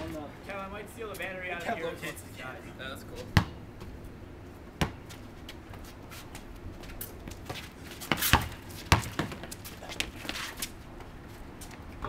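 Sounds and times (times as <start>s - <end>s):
basketball bouncing on concrete: 3.3s - 3.9s, 4.8s - 5.1s, 7.2s - 10.4s.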